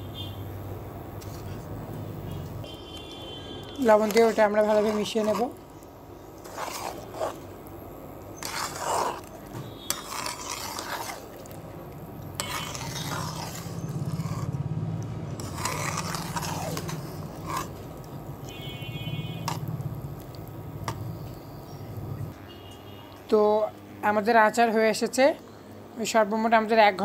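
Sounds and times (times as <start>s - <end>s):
low steady hum: 0.0s - 27.0s
metal spoon scraping pan: 3.8s - 5.6s, 6.4s - 7.5s, 8.4s - 11.4s, 12.4s - 14.6s, 15.4s - 17.8s.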